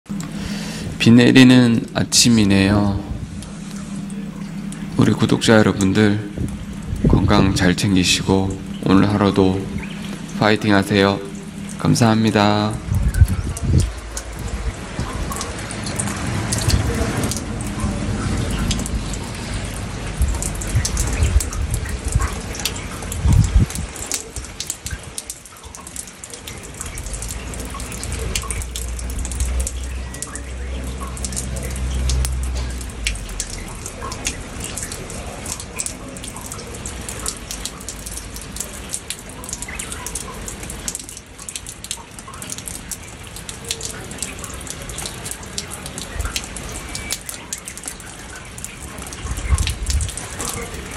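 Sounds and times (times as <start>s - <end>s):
steady rain falling: 0.1s - 50.9s
water drops dripping: 0.1s - 50.9s
low rumble: 1.9s - 23.9s.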